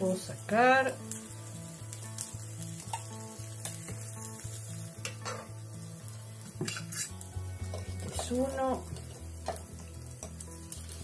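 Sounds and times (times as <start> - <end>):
faint sizzle: 0.0 - 11.0
soft background music: 0.0 - 11.0
fork scraping and tapping metal: 6.6 - 8.4, 9.0 - 10.4.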